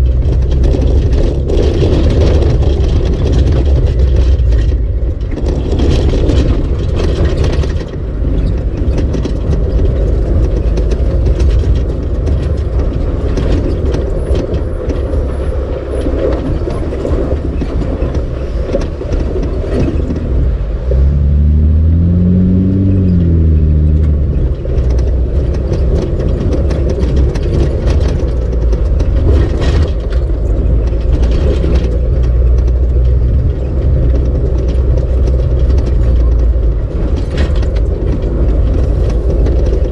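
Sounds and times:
knocks and rattles from bumps: 0:00.0 - 0:39.9
vehicle engine running: 0:00.0 - 0:39.9.

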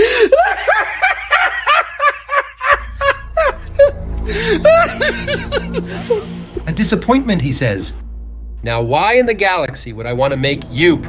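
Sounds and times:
man laughing: 0:00.0 - 0:06.3
low steady hum: 0:02.6 - 0:11.0.

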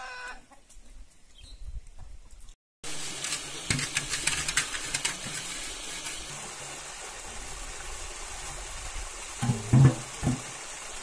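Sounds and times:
running water rushing: 0:02.8 - 0:11.0
pot scrubbing and splashing: 0:02.9 - 0:07.4.

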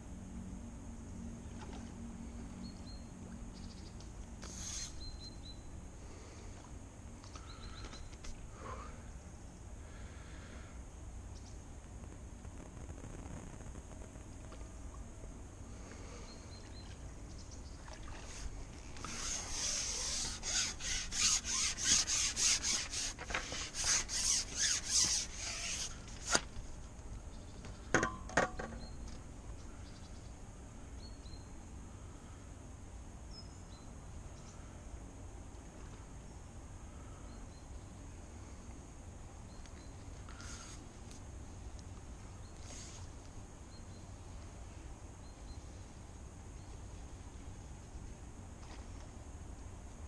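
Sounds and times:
fishing pole rasping rubs: 0:04.4 - 0:05.0, 0:18.2 - 0:26.5.

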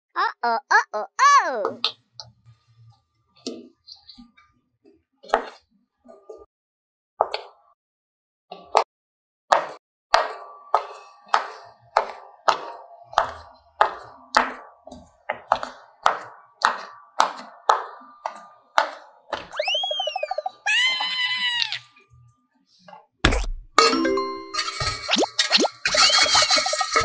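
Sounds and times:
fidget toy bubbles popping: 0:19.6 - 0:20.5.

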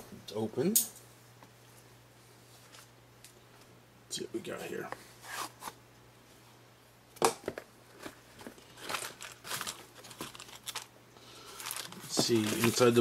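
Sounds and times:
plastic packaging crinkling: 0:08.0 - 0:13.0.

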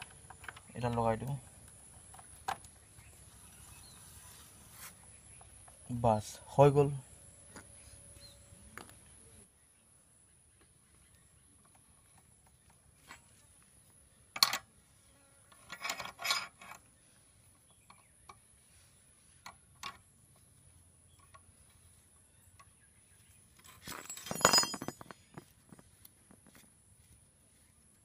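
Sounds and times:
metal jack clinking and rattling: 0:15.6 - 0:16.8, 0:23.6 - 0:25.5.

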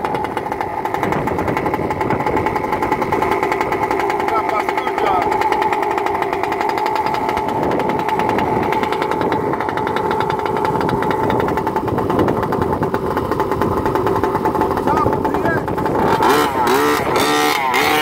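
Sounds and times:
small two-stroke engine idling: 0:00.0 - 0:18.0.

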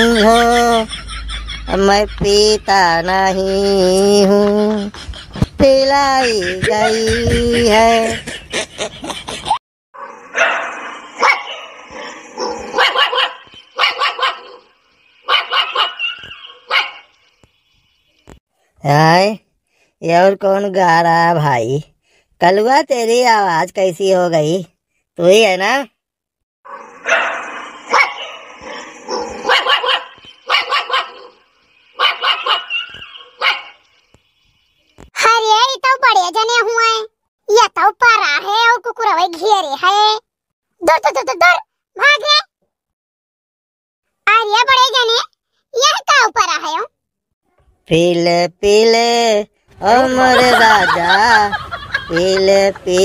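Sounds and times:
dog barking: 0:10.0 - 0:14.7, 0:15.3 - 0:17.1, 0:26.7 - 0:31.4, 0:32.0 - 0:33.8.

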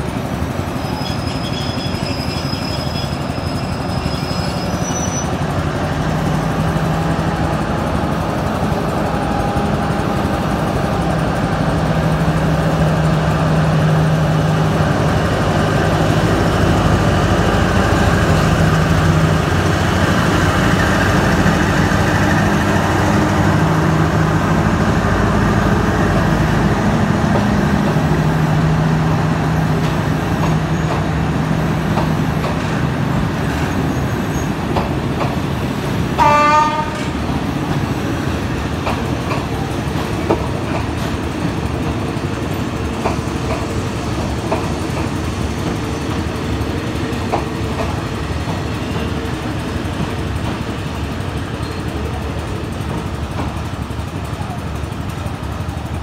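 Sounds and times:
diesel locomotive engine droning: 0:00.0 - 0:56.0
train coaches rumbling past: 0:00.0 - 0:56.0.

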